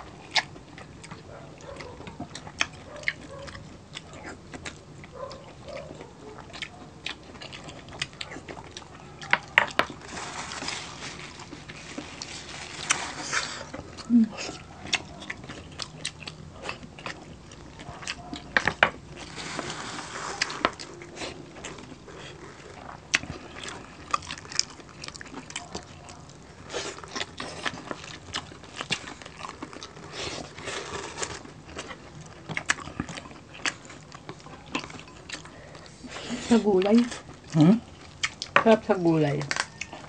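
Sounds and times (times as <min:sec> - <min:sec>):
crispy skin crunching: 0:00.0 - 0:38.6, 0:39.2 - 0:40.0
meat being chewed: 0:00.0 - 0:40.0.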